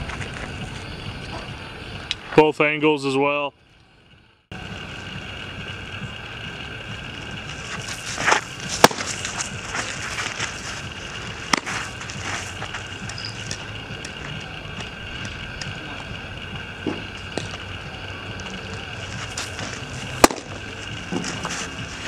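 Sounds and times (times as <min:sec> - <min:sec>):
baseball smacking into mitt: 0:08.2 - 0:09.2, 0:11.5 - 0:11.8, 0:20.2 - 0:20.6.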